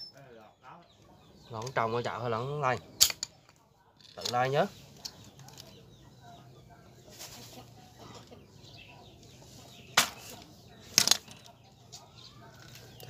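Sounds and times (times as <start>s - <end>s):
tool striking woody stump: 10.0s - 10.2s.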